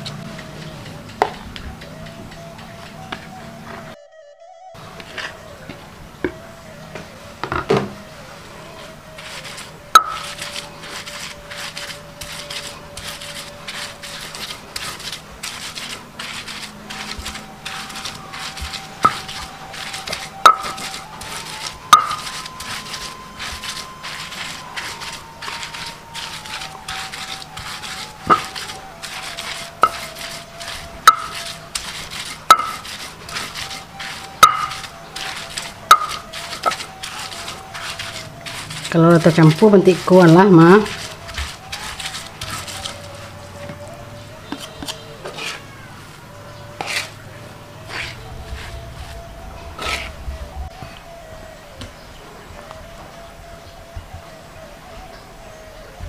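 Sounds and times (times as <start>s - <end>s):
stone pestle scraping on stone slab: 9.1s - 43.9s, 44.5s - 45.7s, 46.7s - 47.2s, 47.8s - 50.2s.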